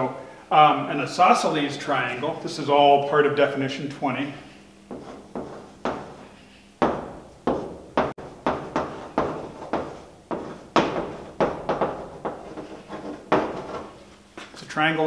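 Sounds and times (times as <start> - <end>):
chalk writing on blackboard: 4.9 - 6.4, 8.5 - 14.1.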